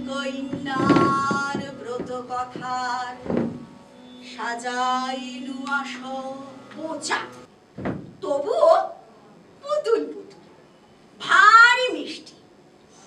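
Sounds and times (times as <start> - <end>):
person singing long held notes: 0.0 - 7.5
steady drone: 0.0 - 7.5
thud: 0.5 - 3.7, 7.8 - 8.2.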